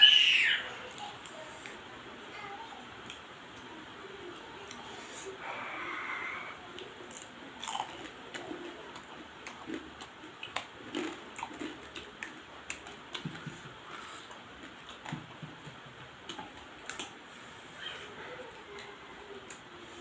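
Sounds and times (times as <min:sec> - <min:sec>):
person chewing and sucking: 0:07.1 - 0:15.2.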